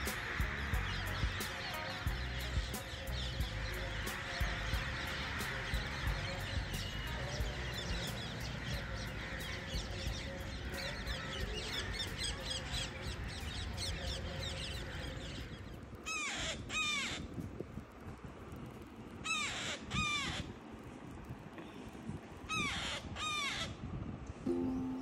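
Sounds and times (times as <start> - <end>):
crows cawing: 0.0 - 13.8, 16.1 - 17.3, 19.3 - 20.5.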